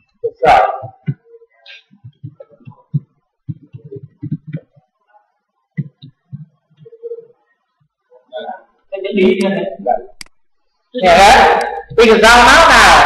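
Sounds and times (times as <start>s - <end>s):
keyboard typing: 0.8s - 4.9s.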